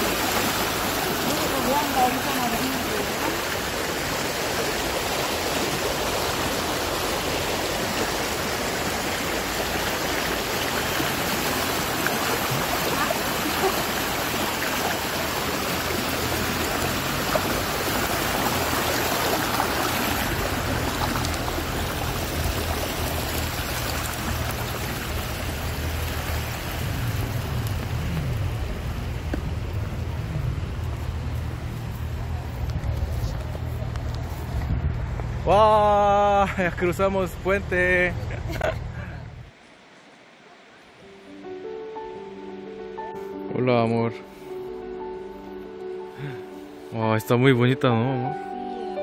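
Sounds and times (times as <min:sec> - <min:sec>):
small river flowing: 0:00.0 - 0:43.3
low rumble: 0:20.3 - 0:35.5.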